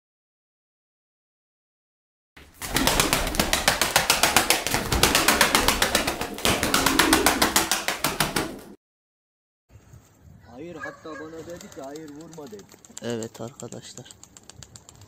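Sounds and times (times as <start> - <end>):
pigeon wings flapping fast: 2.4 - 8.8, 11.3 - 15.0.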